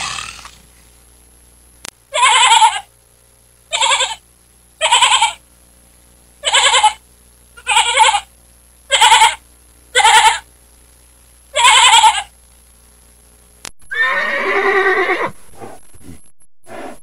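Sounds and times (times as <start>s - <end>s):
lamb bleating: 2.2s - 2.9s, 3.7s - 4.2s, 4.8s - 5.4s, 6.4s - 7.0s, 7.6s - 8.3s, 8.9s - 9.4s, 10.0s - 10.4s, 11.6s - 12.3s.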